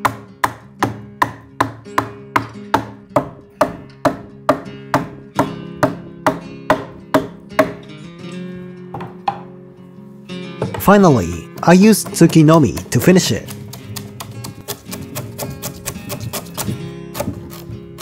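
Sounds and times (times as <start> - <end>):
adze chopping into log: 0.0 - 7.8, 11.5 - 17.6
light guitar music: 0.0 - 18.0.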